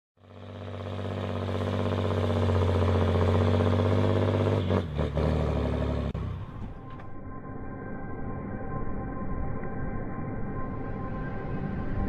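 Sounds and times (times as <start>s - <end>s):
heavy engine running: 0.2s - 7.7s.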